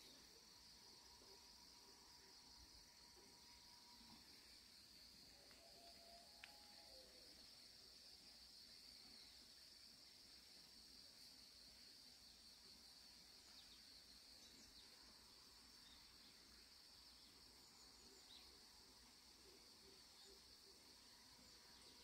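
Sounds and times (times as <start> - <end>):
faint insect chorus: 0.0 - 22.0.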